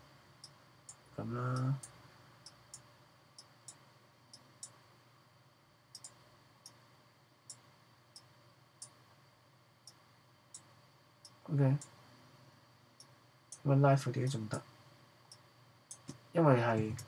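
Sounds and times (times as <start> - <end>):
low room hiss: 0.0 - 17.0
computer mouse clicks: 6.0 - 6.8, 15.3 - 16.2.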